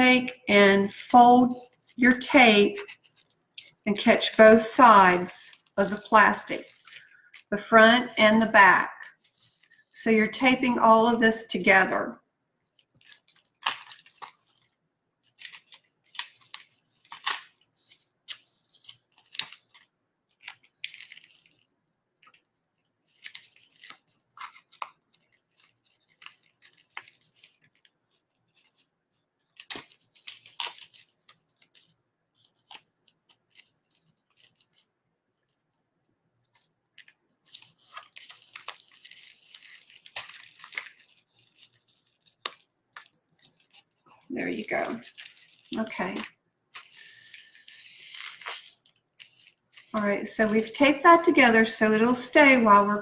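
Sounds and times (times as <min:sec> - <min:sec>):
plastic sheeting crinkling: 0:02.6 - 0:08.0, 0:09.0 - 0:10.0, 0:12.6 - 0:53.0
tape ripping: 0:12.8 - 0:14.7, 0:15.3 - 0:21.6, 0:29.5 - 0:34.9, 0:36.5 - 0:44.0, 0:44.8 - 0:50.0.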